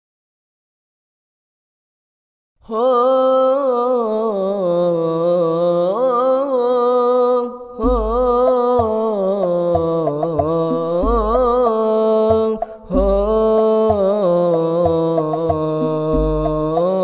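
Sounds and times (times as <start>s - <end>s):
deep bass beats: 7.8s - 14.2s, 14.8s - 16.9s.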